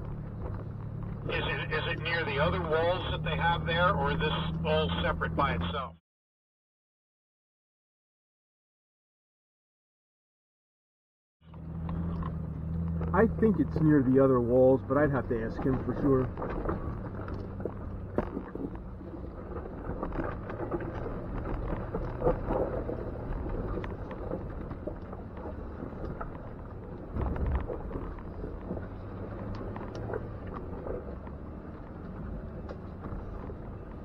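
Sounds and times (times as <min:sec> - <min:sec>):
engine running low: 0:00.0 - 0:06.0, 0:11.4 - 0:34.0
rocks knocking under tires: 0:15.7 - 0:34.0.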